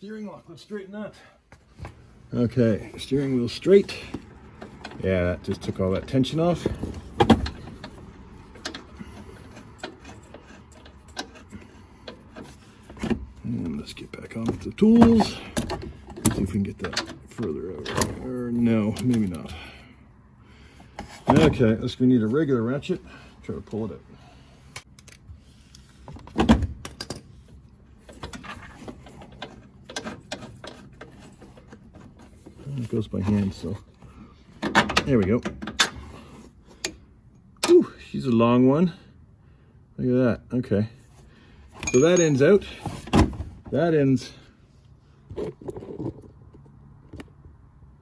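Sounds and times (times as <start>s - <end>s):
metal tool clank: 41.8s - 43.0s.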